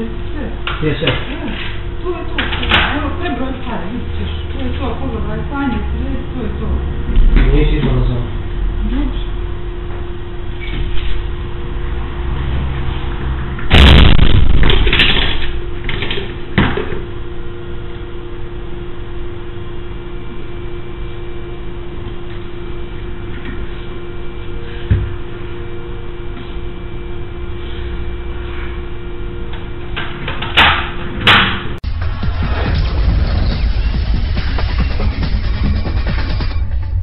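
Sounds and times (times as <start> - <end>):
electrical hum: 0.0 - 37.0
loud burst of noise: 13.7 - 15.4, 31.8 - 37.0.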